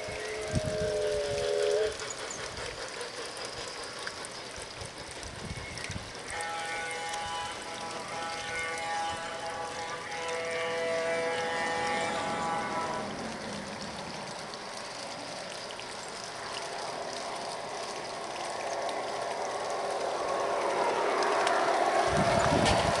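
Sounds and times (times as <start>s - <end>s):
model trains rattling on track: 0.0s - 23.0s.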